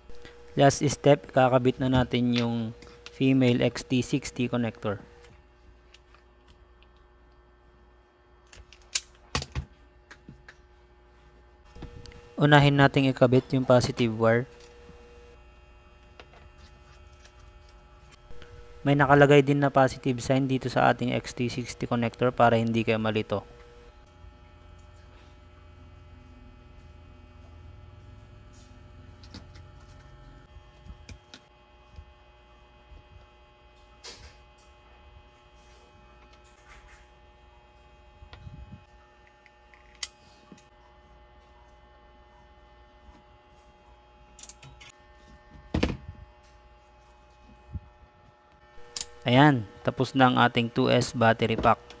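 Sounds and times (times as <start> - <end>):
low electrical hum: 0.0 - 52.0.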